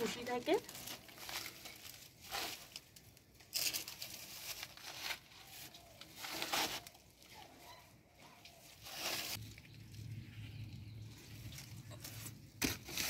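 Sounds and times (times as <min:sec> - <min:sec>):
leaves and branches rustling: 0:00.0 - 0:13.0.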